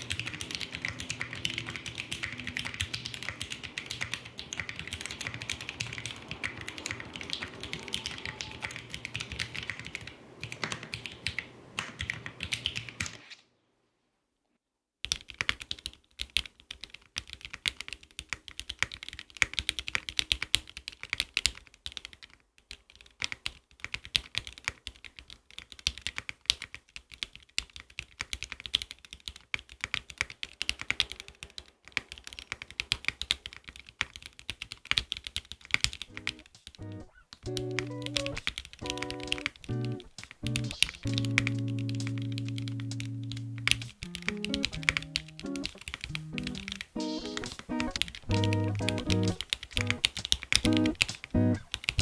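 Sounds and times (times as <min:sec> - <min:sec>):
mechanical keyboard typing: 0:00.0 - 0:13.2, 0:15.0 - 0:52.0.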